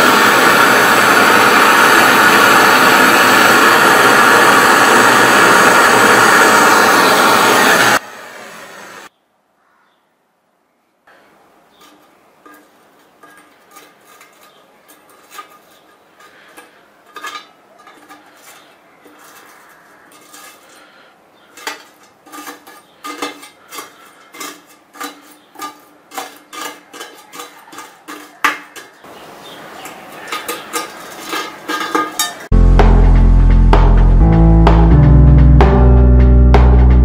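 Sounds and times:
crackling rustle of char: 0:11.1 - 0:32.5
metal blade scraping pot: 0:11.7 - 0:32.5.

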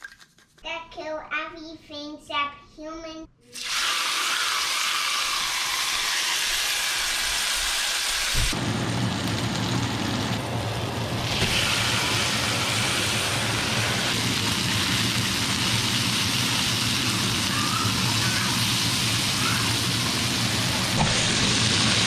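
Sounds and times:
fish sizzling in hot oil: 0:03.6 - 0:22.0
low hum: 0:08.6 - 0:17.1.

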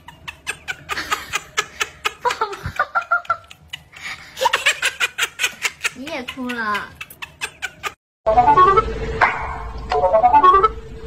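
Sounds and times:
person giggling: 0:00.0 - 0:08.0.

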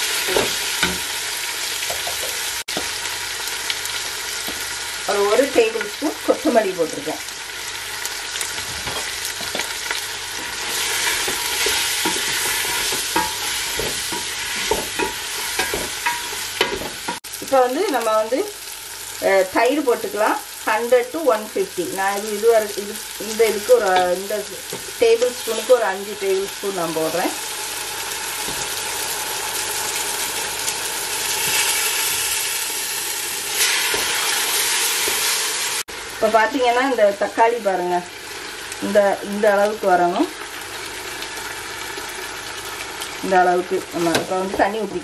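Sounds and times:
masala sizzling in oil: 0:00.0 - 0:45.0
spatula scraping and knocking pot: 0:10.4 - 0:17.2.

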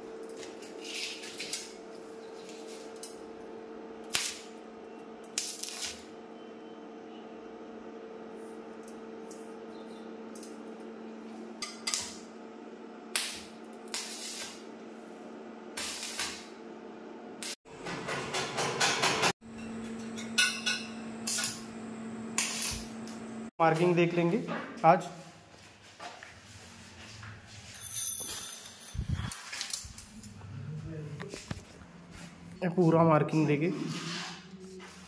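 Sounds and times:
welding machine humming: 0:00.0 - 0:06.4, 0:07.5 - 0:18.0, 0:19.5 - 0:23.5
welding torch hissing bursts: 0:13.2 - 0:14.6, 0:15.8 - 0:16.4, 0:22.4 - 0:22.9.

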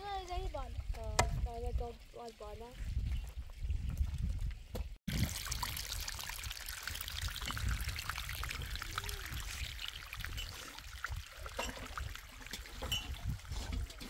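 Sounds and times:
water running and trickling: 0:00.0 - 0:14.0
small splashes: 0:05.1 - 0:14.0.

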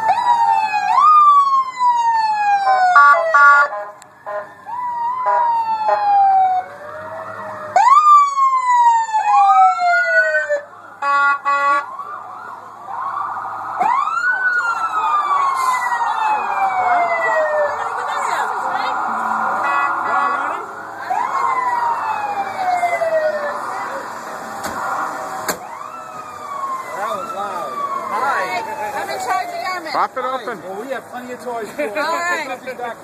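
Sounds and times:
police sirens wailing: 0:00.0 - 0:33.0
pulsed horn blasts: 0:18.0 - 0:21.5.

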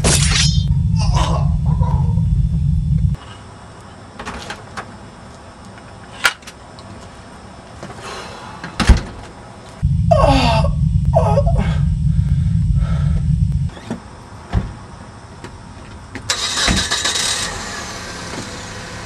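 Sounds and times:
loud low rumble: 0:00.0 - 0:03.2, 0:09.8 - 0:13.7.

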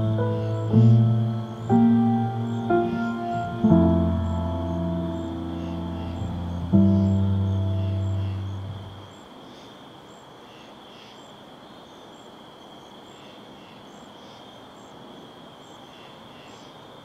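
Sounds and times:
higher repeating chirp: 0:00.0 - 0:09.1
crickets chirping: 0:00.0 - 0:17.0
faint hiss: 0:00.0 - 0:17.0.

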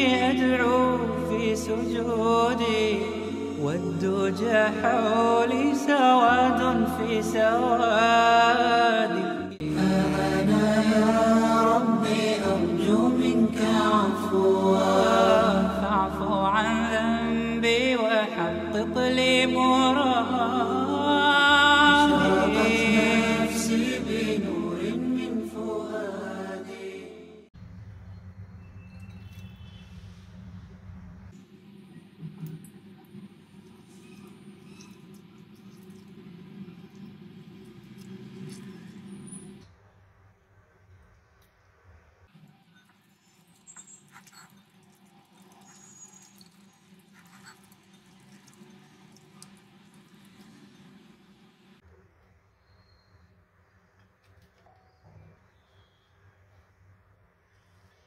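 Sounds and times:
devotional song: 0:00.0 - 0:27.5
low drone: 0:09.5 - 0:27.0
low steady hum: 0:27.6 - 0:43.1.

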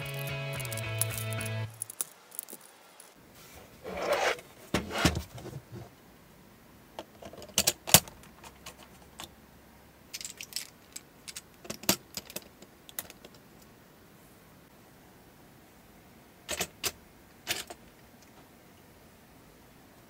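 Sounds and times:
plastic bricks clicking: 0:00.0 - 0:03.1.

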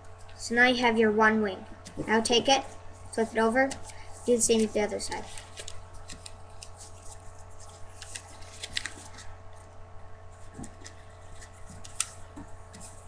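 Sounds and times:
paper being folded and creased: 0:03.7 - 0:09.7, 0:10.3 - 0:13.0.

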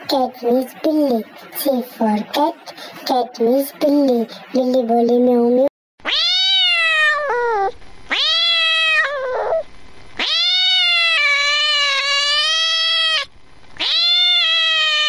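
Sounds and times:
cat meowing: 0:06.0 - 0:09.6, 0:10.2 - 0:15.0.

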